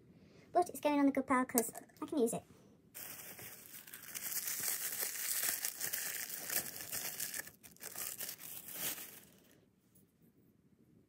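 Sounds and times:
wrapping paper crinkling: 3.0 - 9.6.

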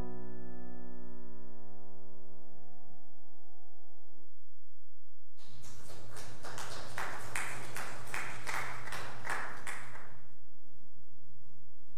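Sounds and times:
congregation applauding: 5.4 - 10.2.

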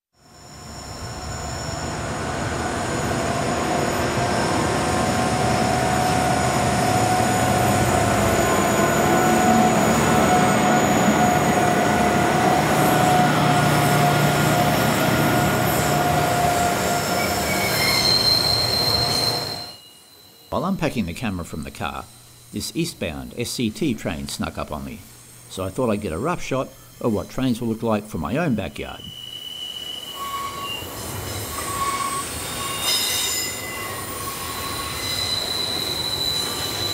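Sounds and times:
train wagons rolling past: 0.2 - 20.6, 29.0 - 36.9
high wheel squeal: 0.2 - 23.4, 28.7 - 36.9
diesel locomotives working: 0.2 - 36.9.

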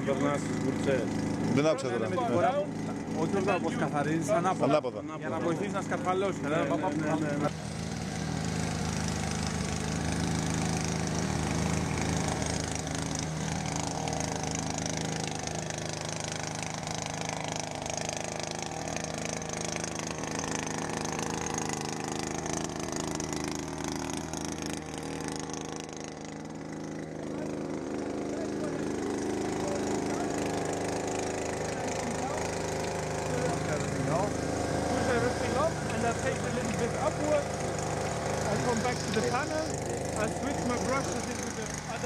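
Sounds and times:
motor hum: 0.0 - 42.0.

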